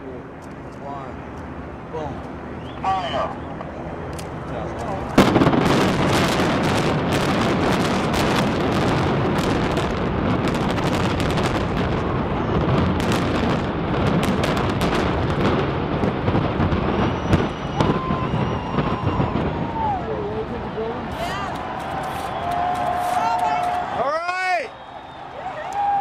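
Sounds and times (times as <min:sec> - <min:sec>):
heavy rumble of collapse: 0:01.4 - 0:24.0
crackle of detonations: 0:05.1 - 0:20.2
sharp explosive blast: 0:05.2 - 0:20.1.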